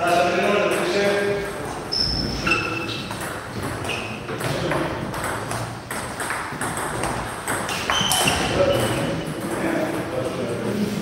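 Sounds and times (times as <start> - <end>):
table tennis balls and bats clicking: 0.0 - 10.6
short high squeaks: 1.9 - 3.1, 3.8 - 4.3, 7.7 - 9.0.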